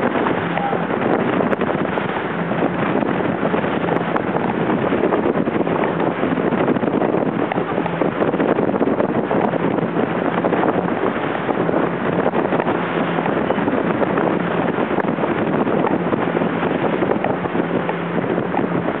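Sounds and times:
water rushing: 0.0s - 19.0s
watercraft engine humming: 0.0s - 19.0s
wind buffeting microphone: 0.0s - 19.0s.

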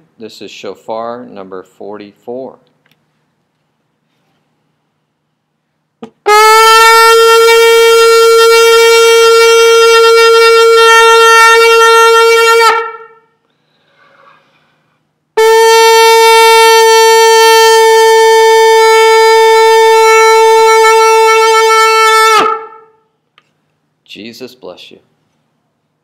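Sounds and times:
shofar blasts: 6.0s - 13.4s, 15.4s - 23.1s
short puff of breath: 13.4s - 15.0s.

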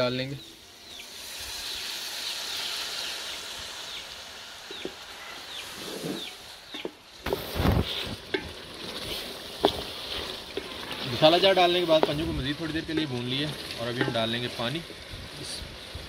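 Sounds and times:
bird chirping: 0.0s - 7.0s
food sizzling in hot oil: 0.0s - 16.0s
stirring knocks: 6.7s - 15.0s.

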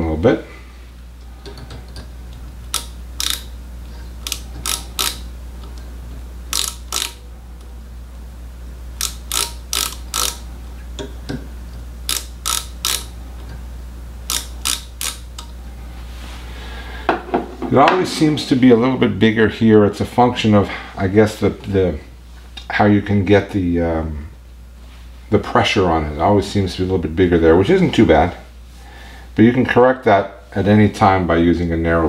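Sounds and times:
micrometer ratchet clicking: 2.6s - 3.6s, 4.2s - 5.8s, 6.5s - 7.2s, 9.0s - 10.5s, 12.1s - 13.2s, 14.2s - 15.6s.

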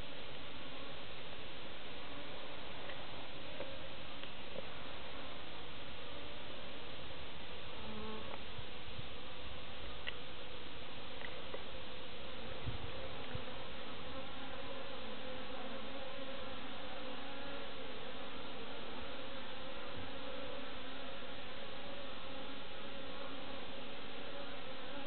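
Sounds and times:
honeybees buzzing: 10.2s - 25.0s.

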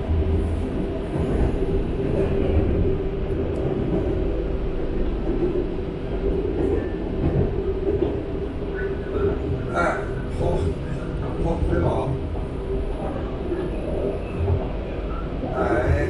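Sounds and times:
train rumbling inside carriage: 0.0s - 16.0s.

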